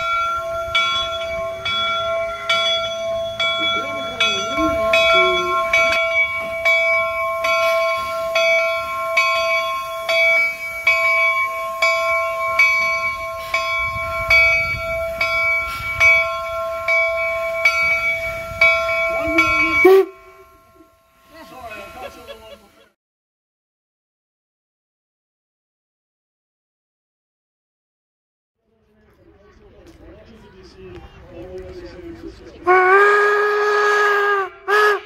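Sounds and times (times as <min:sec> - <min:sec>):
steam locomotive bell ringing: 0:00.0 - 0:23.0.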